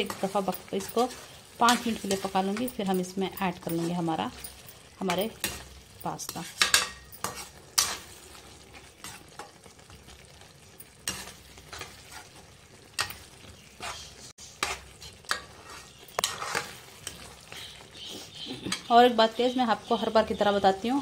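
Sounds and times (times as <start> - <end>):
metal spatula scraping a wok: 0.0 - 9.6, 10.9 - 17.6
food sizzling in a wok: 0.0 - 21.0.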